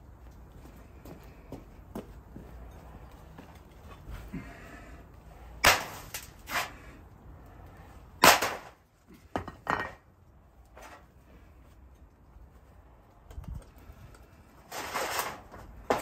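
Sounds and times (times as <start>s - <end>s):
metal mould knocks and clanks: 9.3s - 10.0s.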